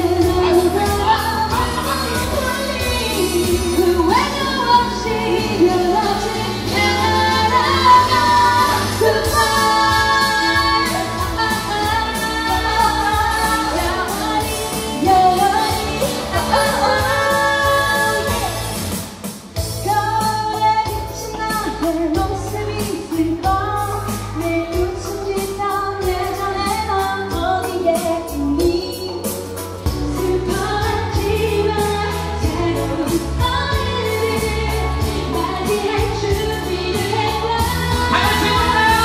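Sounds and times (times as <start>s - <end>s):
women singing into microphones: 0.0s - 18.9s, 19.8s - 39.0s
pop backing track: 0.0s - 39.0s.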